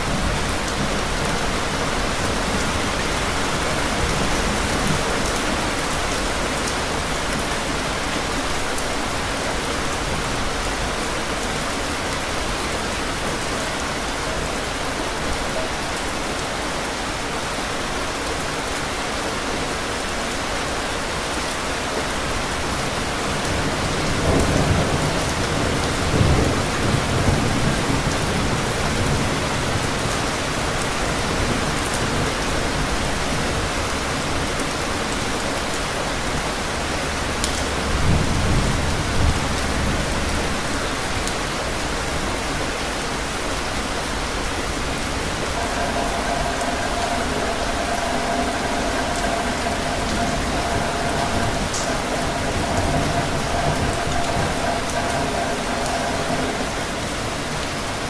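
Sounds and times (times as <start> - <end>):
heavy rainfall: 0.0 - 58.0
thunder rumbling: 43.7 - 58.0.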